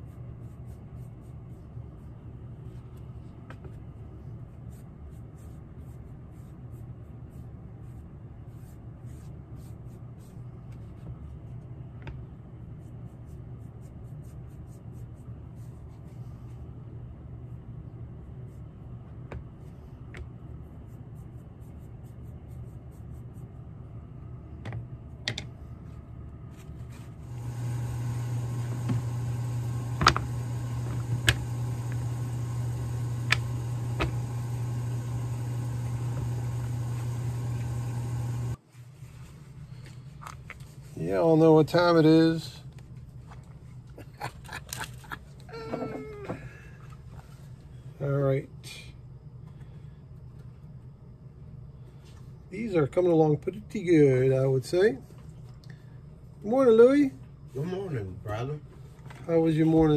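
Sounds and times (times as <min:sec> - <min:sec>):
louder hum with high hiss: 0:00.0 - 0:43.2
low workshop hum: 0:00.0 - 0:59.9.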